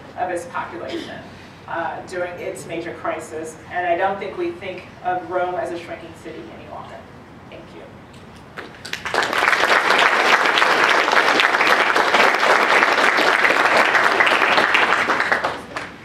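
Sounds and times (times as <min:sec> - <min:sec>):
audience applauding: 0:08.6 - 0:16.0.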